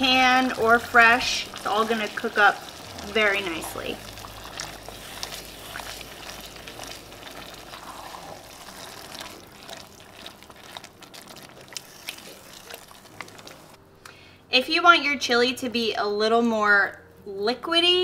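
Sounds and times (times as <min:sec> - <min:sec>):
spoon stirring thick stew: 0:00.0 - 0:13.8.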